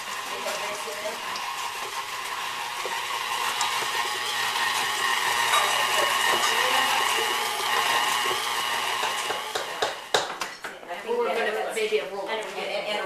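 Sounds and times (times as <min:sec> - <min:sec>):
stand mixer churning dough: 0:00.0 - 0:10.3.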